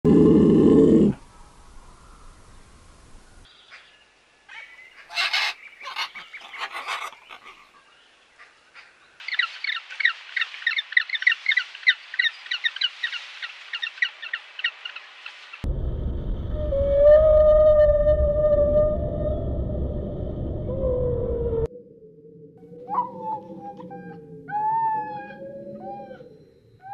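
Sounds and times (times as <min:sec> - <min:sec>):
macaws squawking: 0:04.5 - 0:07.8.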